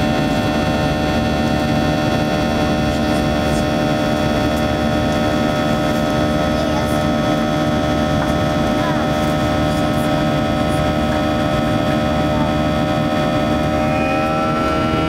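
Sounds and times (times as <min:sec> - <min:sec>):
jet engine drone in cabin: 0:00.0 - 0:15.0
engine whining tones: 0:10.4 - 0:15.0.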